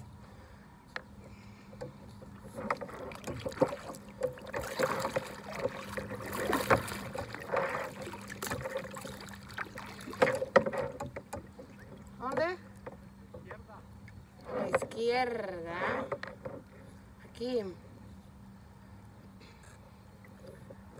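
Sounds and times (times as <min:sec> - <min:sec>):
paddle splashing through water: 0:01.8 - 0:13.0.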